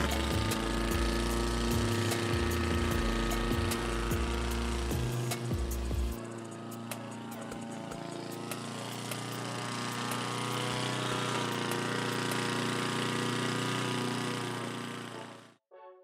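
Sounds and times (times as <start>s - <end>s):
lawn mower engine running: 0.0s - 15.6s.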